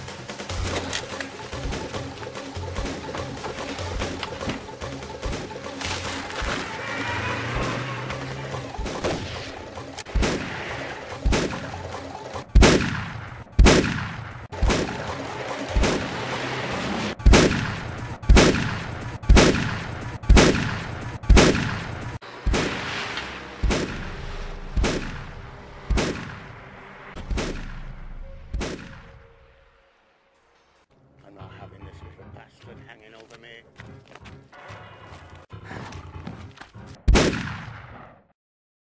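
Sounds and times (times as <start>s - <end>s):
shotgun shots with echo: 12.5s - 15.1s, 17.2s - 22.8s, 24.8s - 25.3s, 25.9s - 26.5s, 37.1s - 38.1s.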